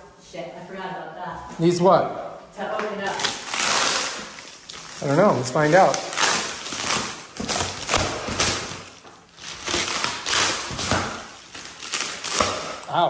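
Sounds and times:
plastic wrap crinkling: 0:03.0 - 0:13.0.

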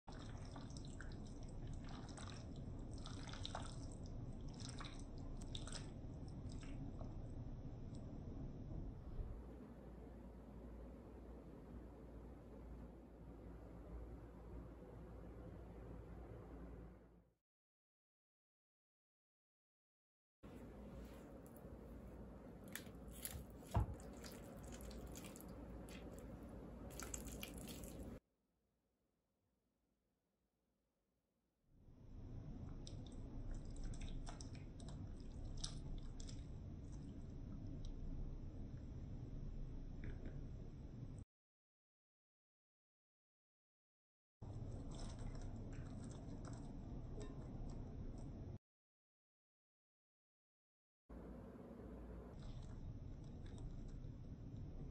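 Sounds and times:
wet squishing of mashed avocado: 0:00.1 - 0:07.2, 0:20.9 - 0:28.2, 0:32.7 - 0:37.3, 0:44.5 - 0:47.8
low background hum: 0:00.1 - 0:17.2, 0:20.5 - 0:28.2, 0:32.0 - 0:41.2, 0:44.4 - 0:48.6, 0:51.1 - 0:54.9
spoon squelching in salsa: 0:22.7 - 0:28.2.

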